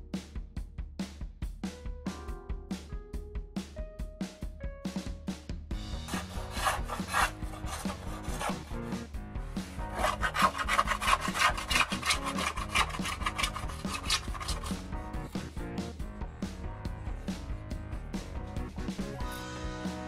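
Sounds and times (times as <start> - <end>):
razor plane scraping wood: 6.1 - 9.0, 9.9 - 14.8.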